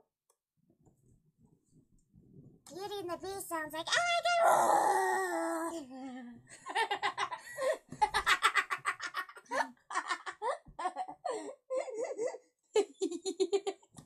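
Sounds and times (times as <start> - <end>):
girls giggling: 6.5 - 13.8.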